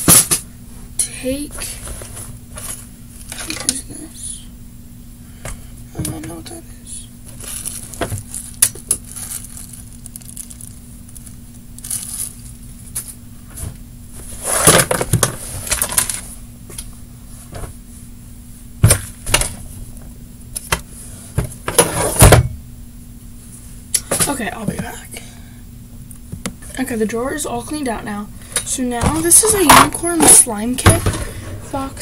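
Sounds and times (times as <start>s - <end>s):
small items clattering: 7.3s - 12.5s.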